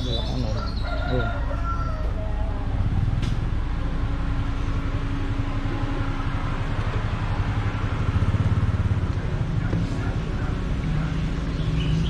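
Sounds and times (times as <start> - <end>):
vehicle engine rumbling: 0.0 - 12.0.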